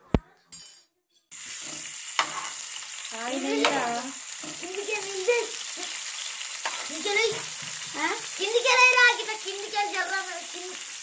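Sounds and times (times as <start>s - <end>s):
steel ladle stirring in pan: 1.3s - 2.7s
onions sizzling in oil: 1.3s - 11.0s.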